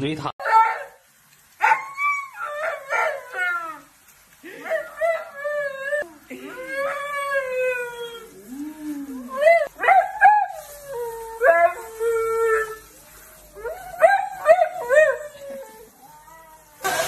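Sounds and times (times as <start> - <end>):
dog howling and whining: 0.4 - 1.0, 1.6 - 4.0, 4.6 - 16.9
dog yipping: 1.6 - 3.2.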